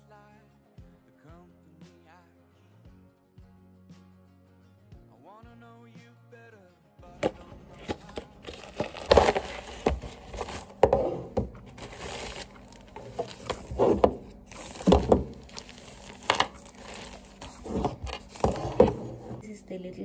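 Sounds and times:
plastic packaging crinkling: 0:07.2 - 0:19.4.

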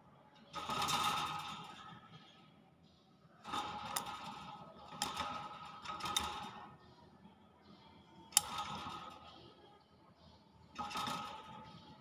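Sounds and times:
sharp clicks on wire: 0:03.5 - 0:06.7, 0:08.3 - 0:09.3.

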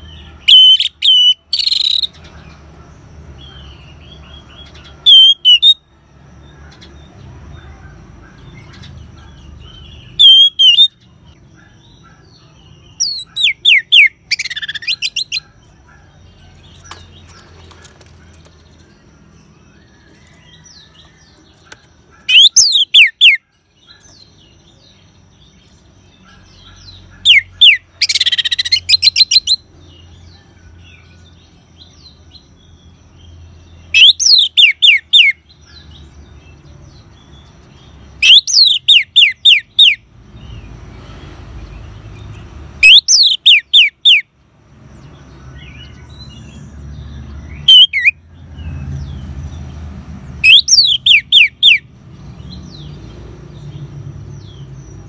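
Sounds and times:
bird whistling call: 0:05.0 - 0:05.8, 0:10.2 - 0:11.0, 0:38.2 - 0:40.0, 0:42.8 - 0:44.2, 0:47.6 - 0:48.2, 0:50.4 - 0:51.8.

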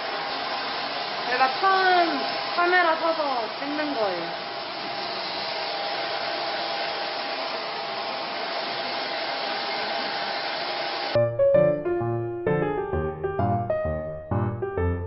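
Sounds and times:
hair dryer blowing: 0:00.0 - 0:11.2
piano music: 0:11.2 - 0:15.0.

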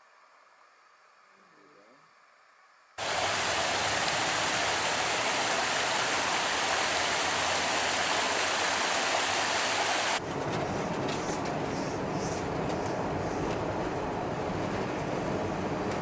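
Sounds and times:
creek rushing over rocks: 0:03.0 - 0:10.2.

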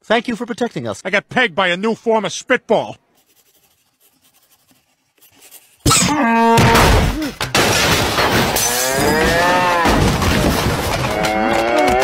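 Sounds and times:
cartoon furniture smashing: 0:05.8 - 0:12.0
bull bellowing: 0:08.6 - 0:10.0, 0:11.0 - 0:12.0.

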